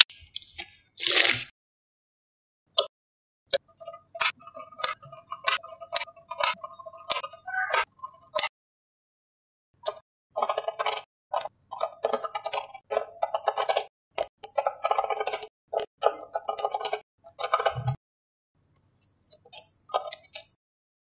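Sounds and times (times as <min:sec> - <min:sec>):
magnetic balls clicking together: 0:09.8 - 0:18.0, 0:18.8 - 0:20.6.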